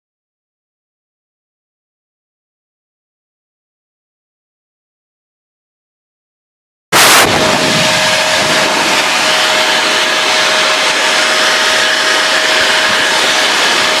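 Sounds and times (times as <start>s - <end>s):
blower whine: 6.9s - 14.0s
electric blower rushing air: 6.9s - 14.0s.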